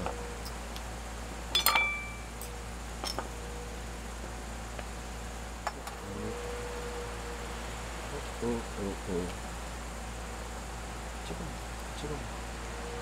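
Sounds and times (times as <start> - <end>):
metal spoon clinking on bowl: 1.5 - 2.2.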